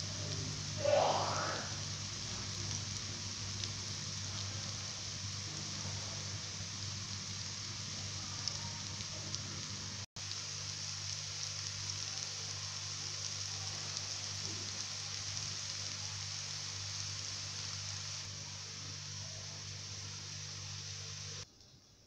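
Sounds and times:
low steady hum: 0:00.0 - 0:12.1
food frying in hot oil: 0:00.0 - 0:21.5.

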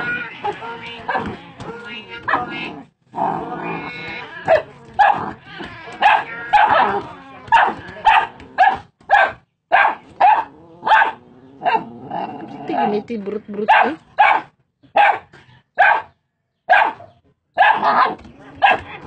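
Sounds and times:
dog barking: 0:01.0 - 0:01.4, 0:04.5 - 0:05.4, 0:06.0 - 0:12.0, 0:13.6 - 0:19.0.

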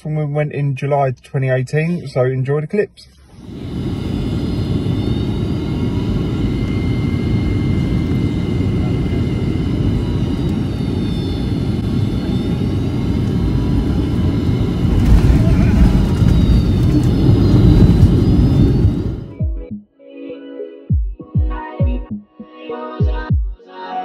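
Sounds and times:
high engine whines: 0:03.1 - 0:19.4
engine and airflow roar: 0:03.2 - 0:19.4.

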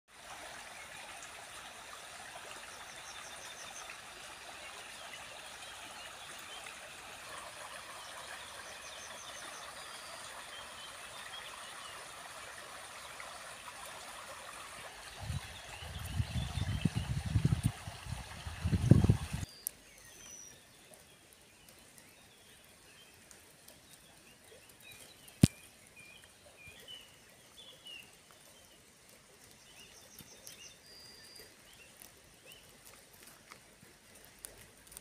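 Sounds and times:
stream trickling: 0:00.1 - 0:35.0.

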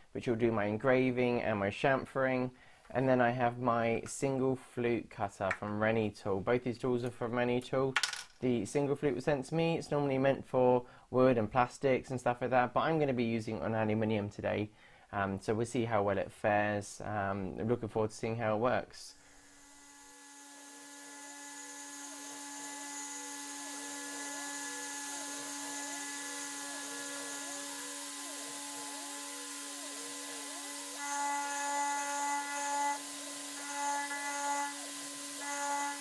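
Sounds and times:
cutter cutting aluminium: 0:19.3 - 0:36.0
milling spindle whining: 0:19.4 - 0:36.0.

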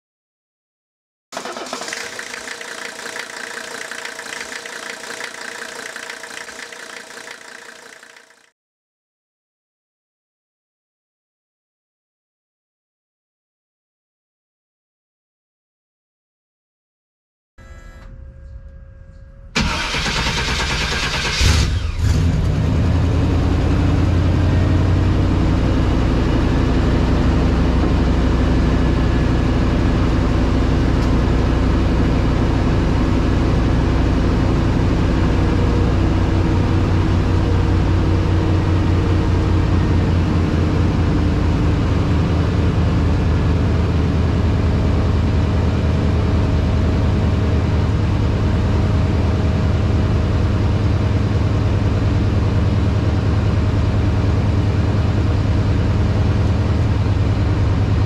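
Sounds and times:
engine cranking and idling: 0:01.4 - 0:08.5, 0:19.6 - 0:22.3.

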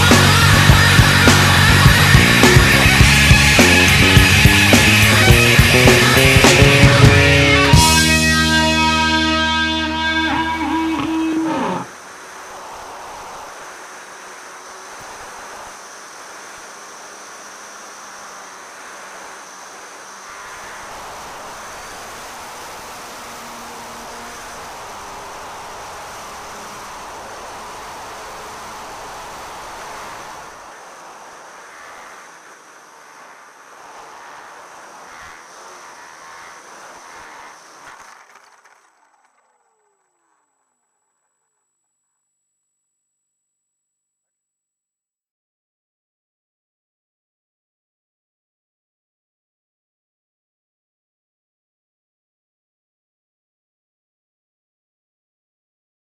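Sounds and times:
rc plane motor and air rush: 0:10.5 - 0:41.6.

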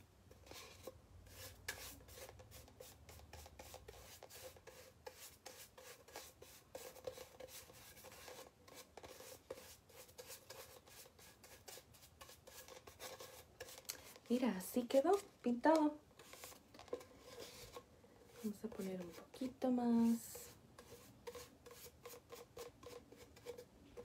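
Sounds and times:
paintbrush strokes on cardboard: 0:00.3 - 0:24.0.

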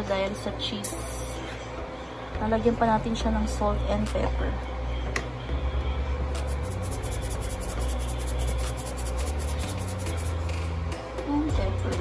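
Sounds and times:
background music bass line: 0:05.4 - 0:12.0.

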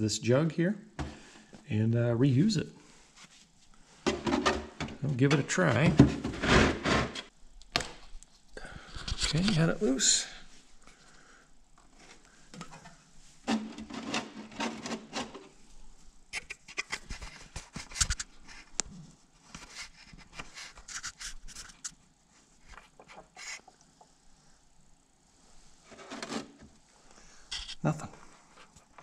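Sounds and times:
scraping rasp: 0:04.1 - 0:07.3, 0:13.5 - 0:15.5, 0:25.9 - 0:26.6.

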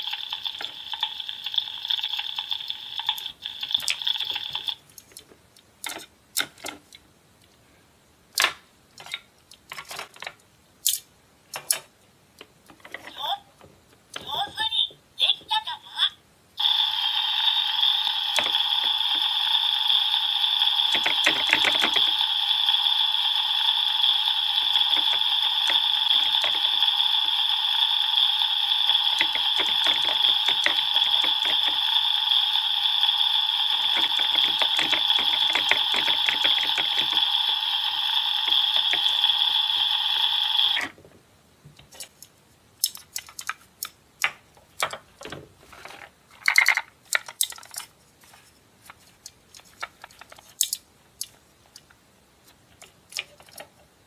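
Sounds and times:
electronic sizzling sound effect: 0:16.6 - 0:40.9
plastic toy pan and spatula clacks: 0:46.4 - 0:47.9.

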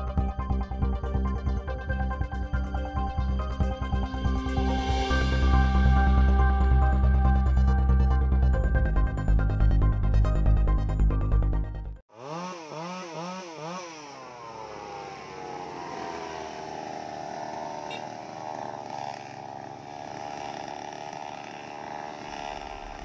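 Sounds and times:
music: 0:00.0 - 0:12.0
chainsaw revving and running: 0:12.1 - 0:23.0.

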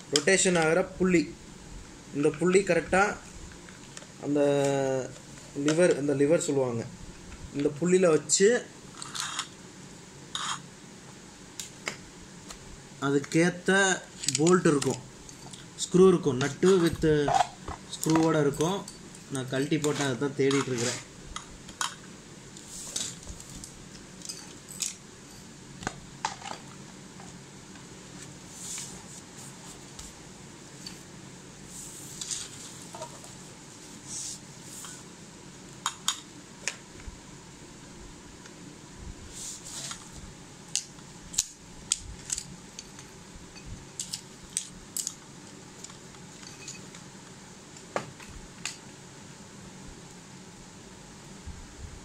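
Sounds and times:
faint steady hiss: 0:00.0 - 0:52.0
soft rustle: 0:28.0 - 0:35.1, 0:39.3 - 0:40.3.

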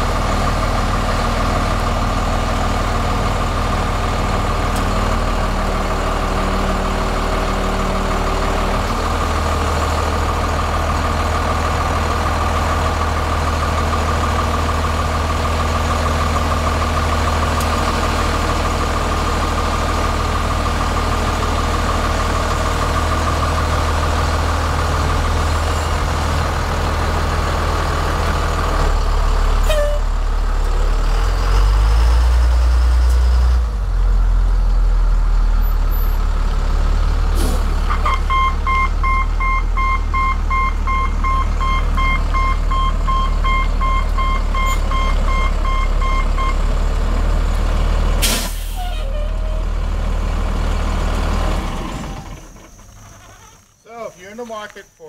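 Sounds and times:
diesel engine running: 0:00.0 - 0:53.7
truck backup alarm beeping: 0:37.9 - 0:46.7.

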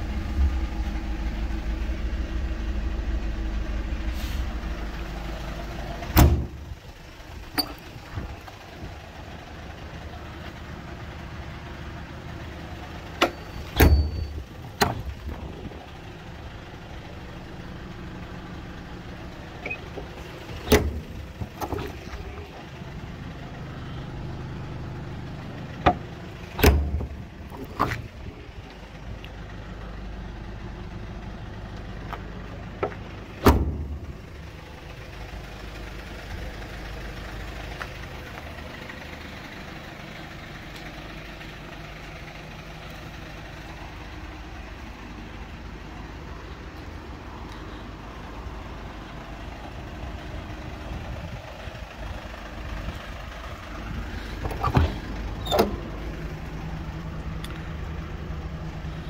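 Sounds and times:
low mechanical hum: 0:00.0 - 0:10.3, 0:12.3 - 0:35.7.

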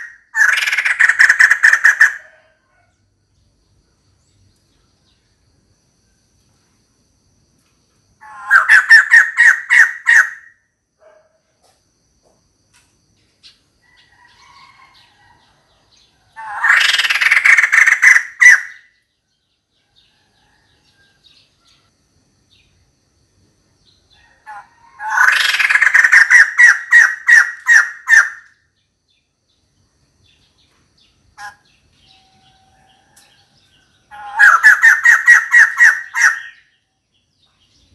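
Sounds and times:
bird laughing calls: 0:08.2 - 0:10.4, 0:34.1 - 0:36.6.

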